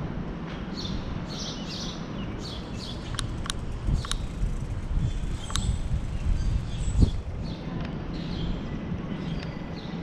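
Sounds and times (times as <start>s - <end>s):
wind and tyre rumble: 0.0s - 10.0s
birds chirping: 0.8s - 10.0s
sharp clicks: 3.0s - 4.3s, 5.4s - 5.8s.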